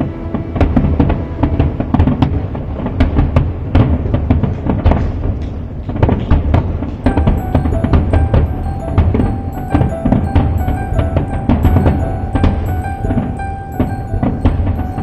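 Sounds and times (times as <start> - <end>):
music playing: 0.0 - 2.9, 7.1 - 15.0
fireworks shell bursts banging: 0.0 - 15.0.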